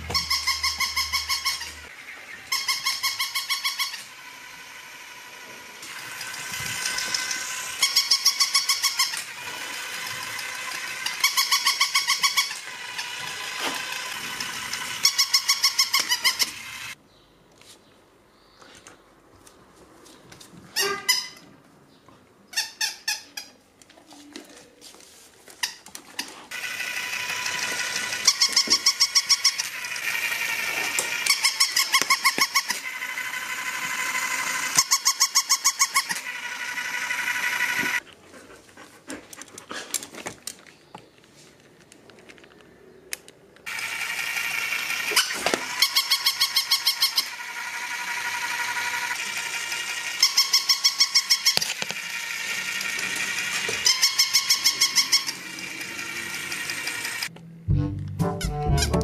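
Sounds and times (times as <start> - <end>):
toy motor whirring: 0.0 - 17.0, 25.6 - 38.0, 43.6 - 57.3.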